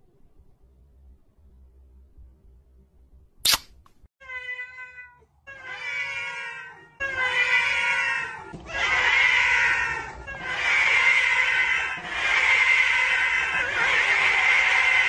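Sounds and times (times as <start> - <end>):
short sharp click: 3.4 - 4.0
cat meowing: 4.2 - 15.0
overlapping chorus of cat meows: 4.2 - 15.0.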